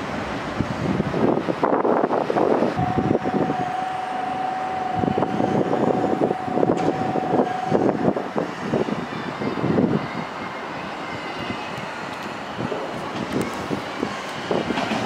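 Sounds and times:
electric train rushing past: 0.0 - 15.0
steady high tone: 2.8 - 8.2
wheels clattering over rail joints: 11.8 - 15.0.

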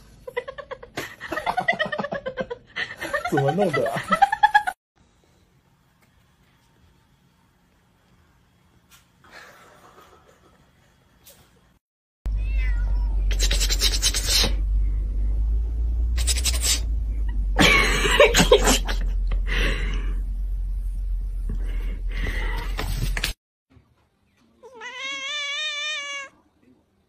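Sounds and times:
cat meowing loudly: 12.3 - 13.3, 24.6 - 26.4
steady low rumble: 13.9 - 22.7.

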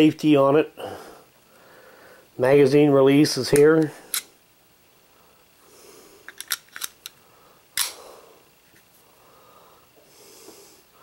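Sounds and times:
pistol magazine clicks: 7.8 - 8.0
sharp metallic snap: 7.8 - 8.0.

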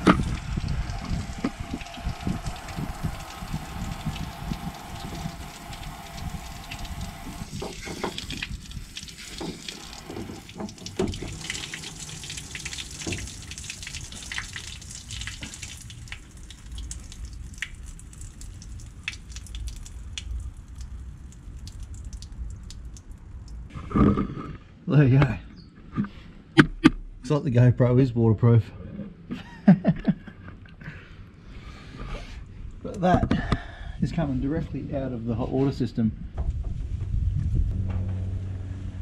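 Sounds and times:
water spraying and splashing: 0.0 - 23.7
water trickling and dripping: 0.0 - 23.7.

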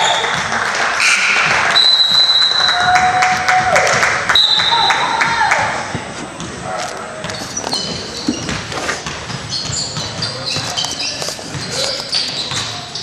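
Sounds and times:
sneakers squeaking on hardwood: 3.6 - 13.0
scattered voices: 4.7 - 13.0.

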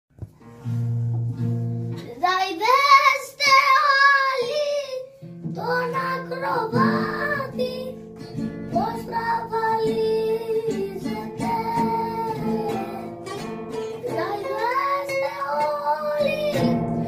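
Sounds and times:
plucked strings: 0.2 - 4.0, 5.2 - 17.0
high voice singing: 2.2 - 8.0, 8.7 - 13.3, 14.0 - 17.0.

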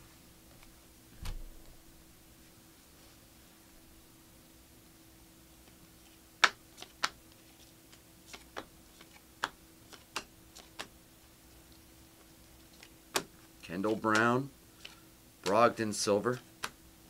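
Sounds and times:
faint steady hum: 0.0 - 17.0
trading cards flipped by hand: 6.0 - 10.9, 12.6 - 16.8.

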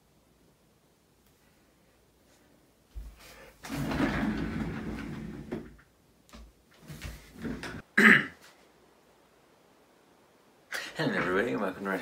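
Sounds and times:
chair rustling: 3.0 - 5.8, 6.7 - 8.7.

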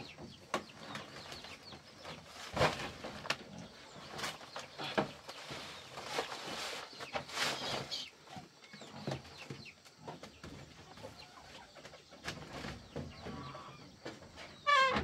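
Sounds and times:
bamboo basket rustling and creaking: 0.0 - 15.0
farm animals calling: 12.9 - 15.0.

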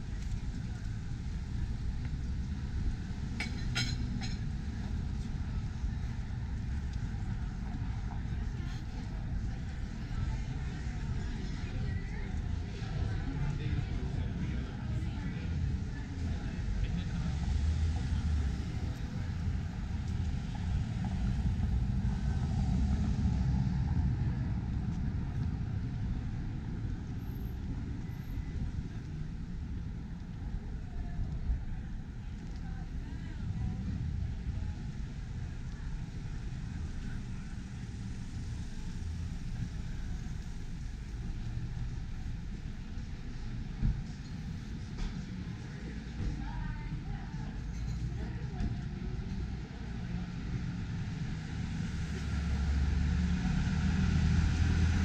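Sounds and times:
low rumble of traffic: 0.0 - 55.0
car passing: 50.8 - 55.0.

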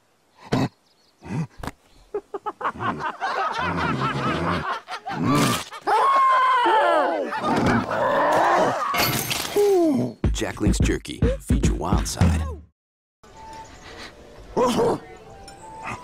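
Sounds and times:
man laughing: 2.1 - 6.5.

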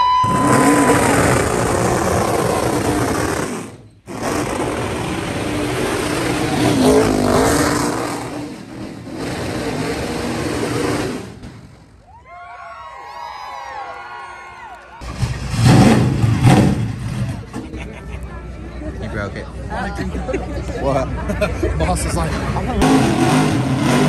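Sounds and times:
car engine revving: 0.2 - 11.9, 15.0 - 17.6, 22.3 - 24.0
tyres spinning on tarmac: 0.3 - 11.9.

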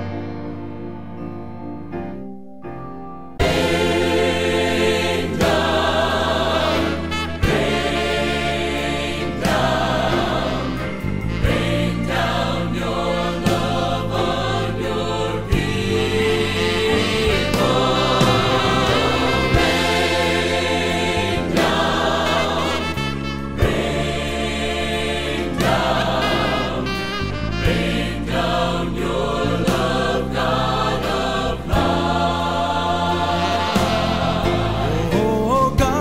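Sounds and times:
instrumental accompaniment: 0.0 - 36.0
sustained bass notes: 0.0 - 36.0
choir singing a sacred song: 3.4 - 35.3.

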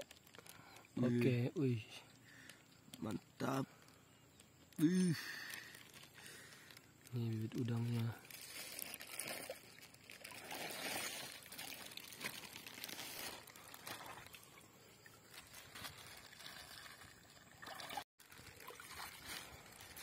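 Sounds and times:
water pouring into pond: 4.8 - 20.0.

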